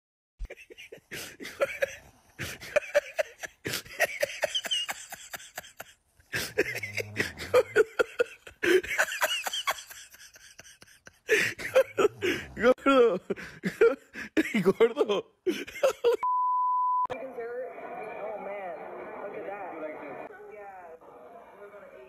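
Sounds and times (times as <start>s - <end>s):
person laughing: 0.4s - 16.2s.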